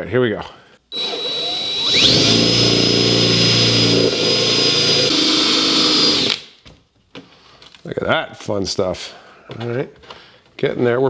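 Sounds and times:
cordless drill whining: 0.9 - 6.4
drill bit cutting panel buzz: 0.9 - 6.4.

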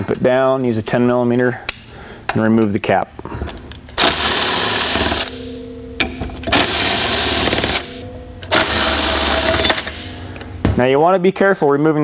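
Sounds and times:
impact driver rattling: 6.4 - 10.1.

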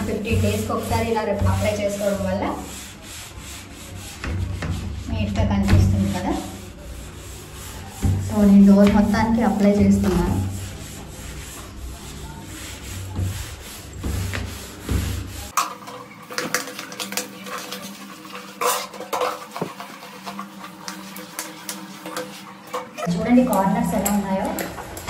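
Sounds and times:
scrub pad scrubbing a door: 0.0 - 15.6.

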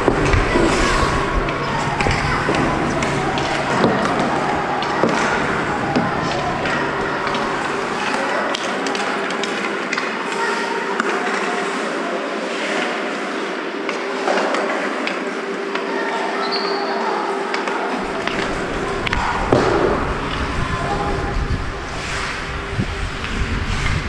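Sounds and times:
steady hum: 0.0 - 9.9, 18.0 - 24.0
skates scraping on ice: 0.0 - 15.3, 18.0 - 24.0
hockey sticks and pucks clicking: 0.0 - 15.9, 17.5 - 20.6.

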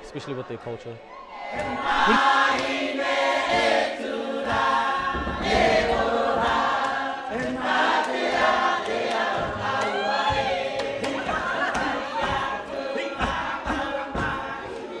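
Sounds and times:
group of voices singing: 1.2 - 15.0.

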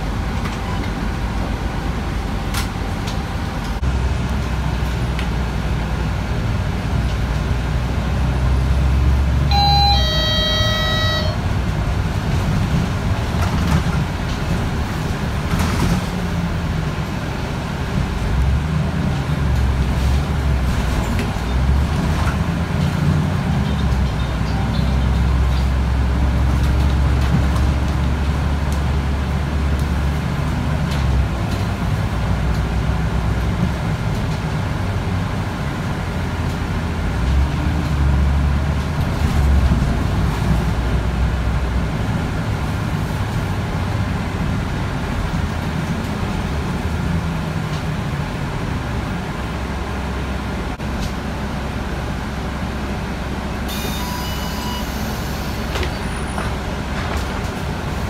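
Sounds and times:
bus diesel engine droning: 0.0 - 58.0
brief high-pitched sound: 9.5 - 11.4.

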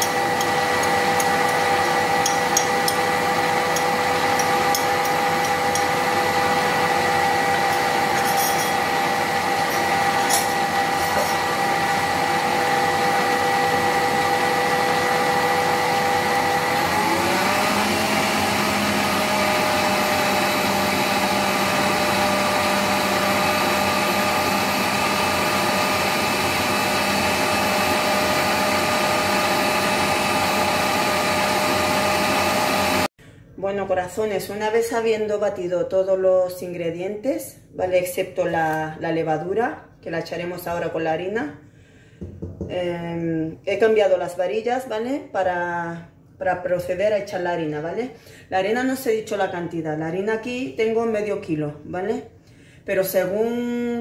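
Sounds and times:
stand mixer whisking: 0.0 - 33.1.

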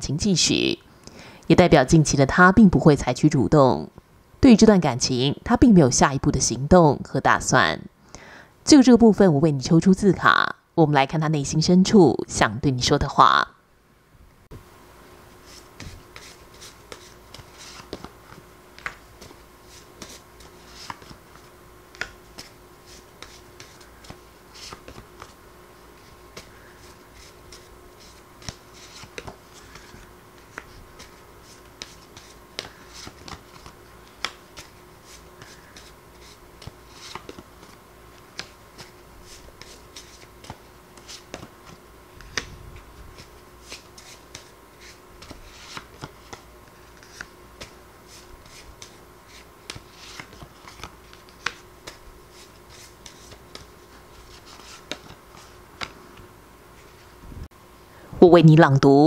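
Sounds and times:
faint steady hum: 0.0 - 59.0
paper cards shuffling: 15.4 - 56.2.

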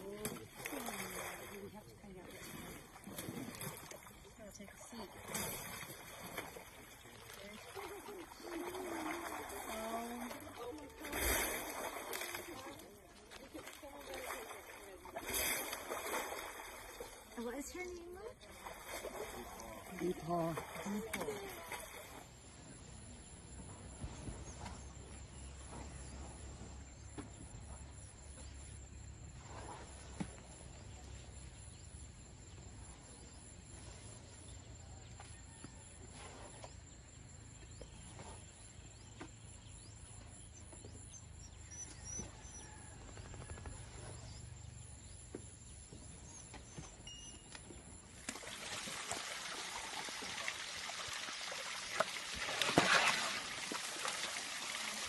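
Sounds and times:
mud and water splashing: 0.0 - 22.7, 47.6 - 55.0.

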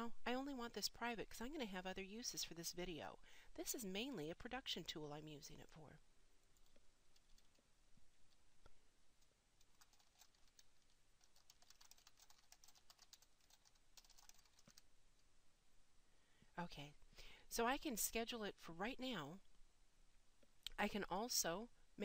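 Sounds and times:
typing on a keyboard: 6.6 - 7.6, 9.6 - 14.8.

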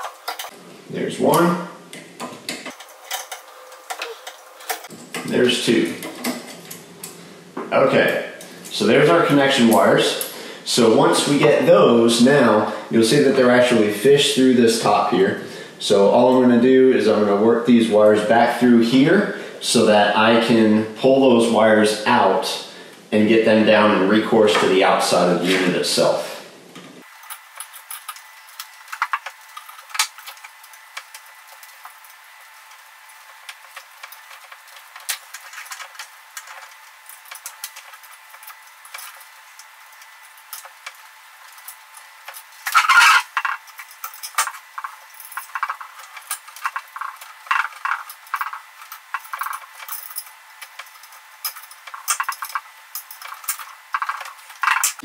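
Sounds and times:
screwdriver and wires rattling: 0.0 - 0.6, 2.2 - 5.4, 27.1 - 32.1, 33.5 - 55.0.

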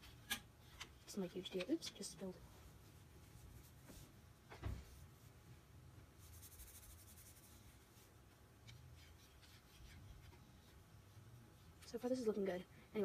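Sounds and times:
paper towel rubbing: 6.2 - 8.1.

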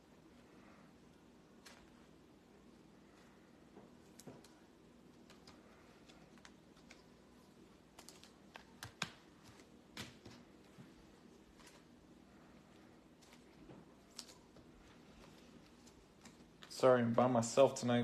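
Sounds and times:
faint clicks and taps: 7.9 - 11.8.

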